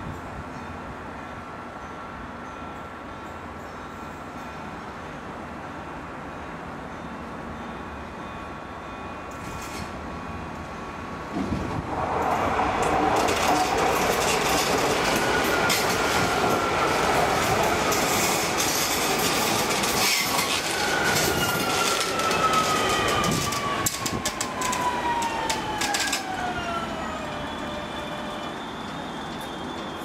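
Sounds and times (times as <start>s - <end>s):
electric train passing: 0.2s - 30.0s
wheels clicking over rail joints: 12.8s - 26.4s.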